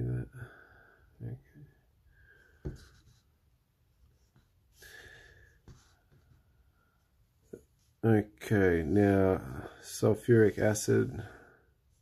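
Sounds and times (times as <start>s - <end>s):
soft knock on desk: 2.6s - 3.0s.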